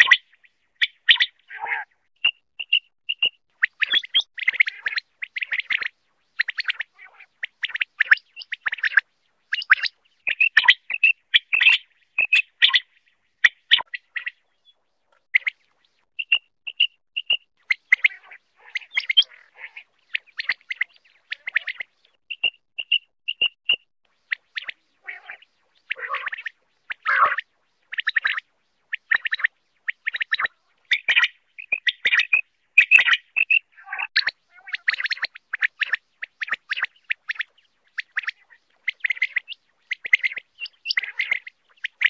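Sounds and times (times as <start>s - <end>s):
quail calling: 0.0s - 14.5s, 16.2s - 23.5s, 24.3s - 28.4s, 29.0s - 42.0s.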